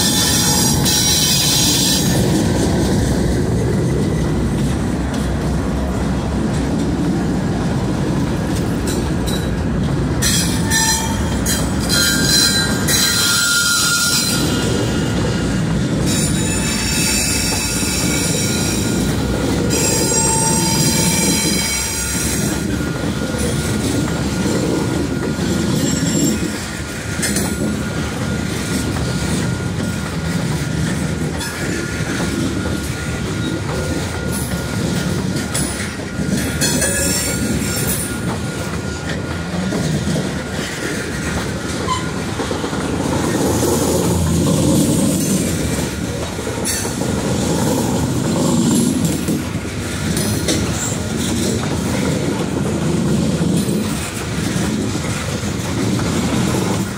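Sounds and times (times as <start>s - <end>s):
high wheel flange squeals: 0.0s - 2.8s, 10.2s - 30.2s, 31.4s - 42.6s
train wheels rumbling on rails: 0.0s - 56.9s.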